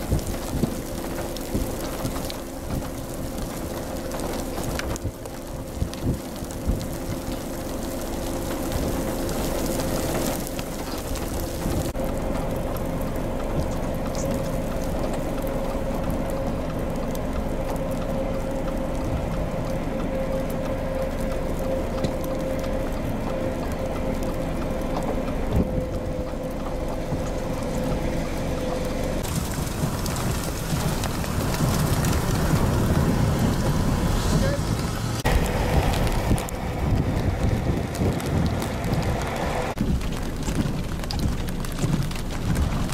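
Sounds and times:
heavy rain: 0.0 - 42.9
low rumble: 0.0 - 42.9
windy rush: 25.2 - 42.9.

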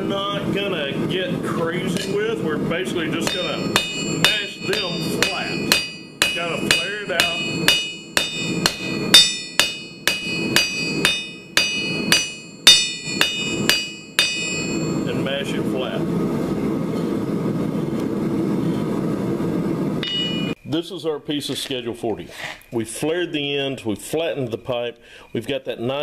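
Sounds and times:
hammer striking metal on anvil: 1.9 - 2.2, 3.2 - 15.2, 20.0 - 20.6.

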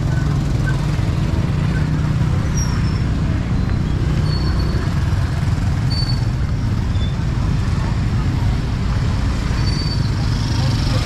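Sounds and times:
traffic rumble: 0.0 - 11.0.

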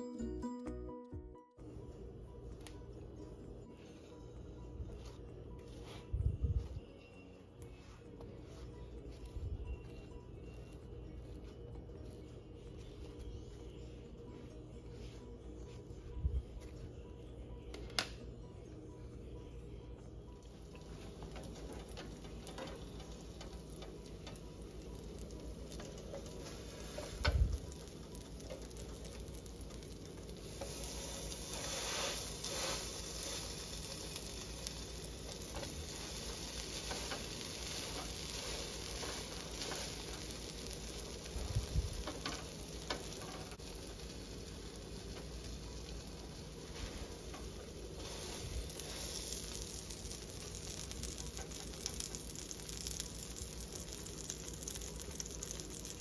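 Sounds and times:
bread sizzling on griddle: 20.6 - 56.0.

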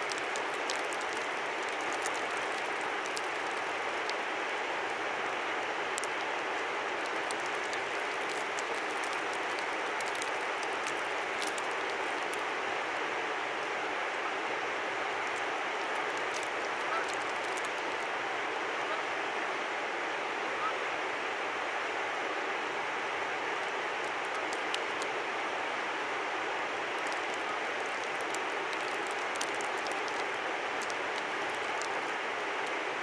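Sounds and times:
small sharp ticks: 0.0 - 4.2, 7.0 - 12.5, 15.2 - 18.1, 23.6 - 25.1, 26.9 - 32.8
river rushing: 0.0 - 33.0.

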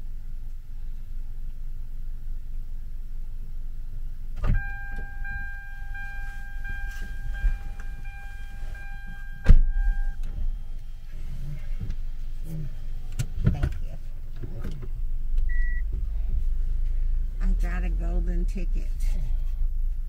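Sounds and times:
low car cabin rumble: 0.0 - 20.0
power window motor whine: 4.4 - 10.9.

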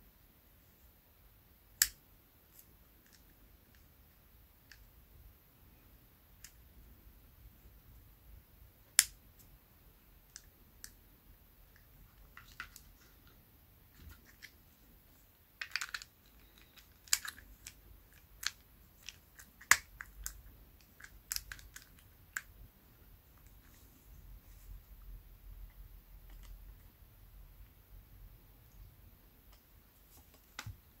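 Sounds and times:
small clicks of parts handled: 1.8 - 3.8, 15.6 - 22.5.

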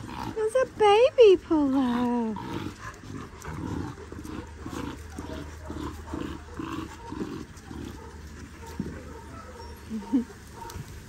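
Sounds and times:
puppies play-growling: 0.0 - 11.0.

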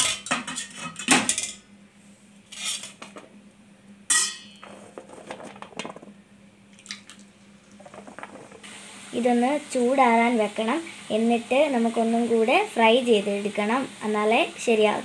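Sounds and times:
faint steady hum: 0.0 - 15.0
metal utensils clinking on cookware: 4.1 - 4.7.

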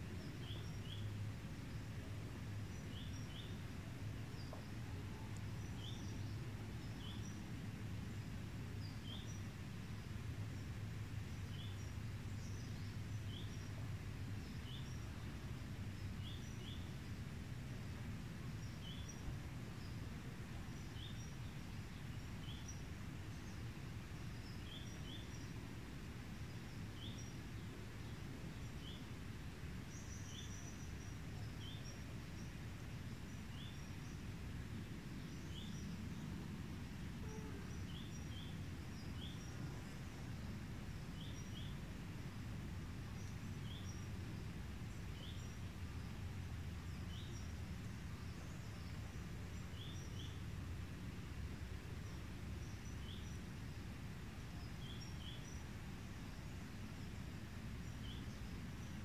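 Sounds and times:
low background rumble: 0.0 - 59.0
small birds chirping: 0.0 - 59.0.

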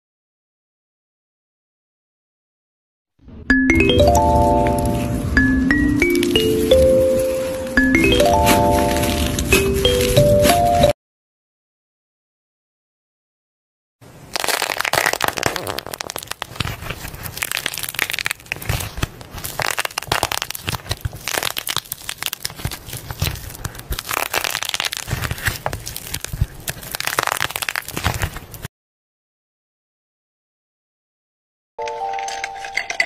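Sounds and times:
slime squeezed and crackling: 14.3 - 28.7.

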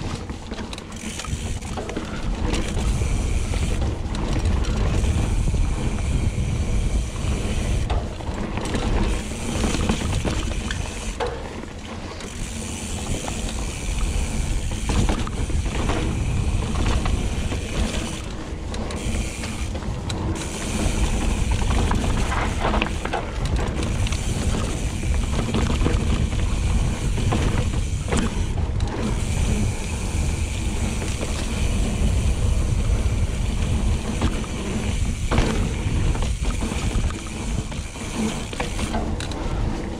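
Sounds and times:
bicycle freehub buzzing: 0.0 - 39.9
low rumble of wind and trail: 0.0 - 39.9.

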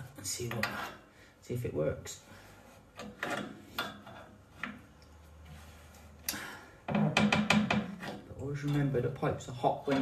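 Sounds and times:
clicks and scrapes on pipe joint: 2.9 - 4.8.

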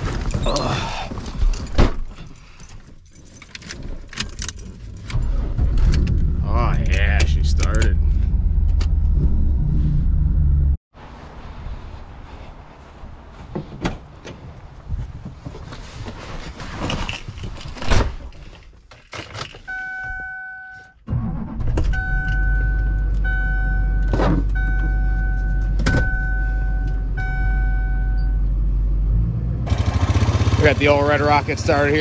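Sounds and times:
keys jangling: 1.4 - 5.1
two-tone warning chime: 19.7 - 20.9, 22.0 - 28.4.

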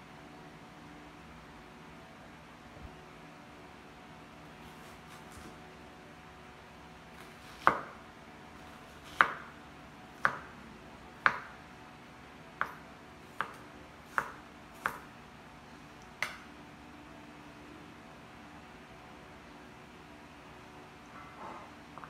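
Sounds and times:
knife chopping on wooden board: 7.2 - 8.0, 8.9 - 9.6, 10.2 - 10.5, 11.2 - 11.6, 12.6 - 15.1.

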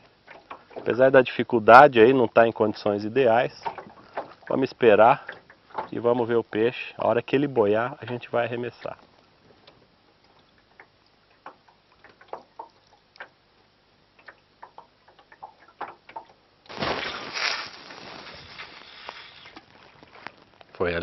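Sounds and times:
water lapping against boat hull: 0.0 - 20.6
small ticks: 14.2 - 16.4.

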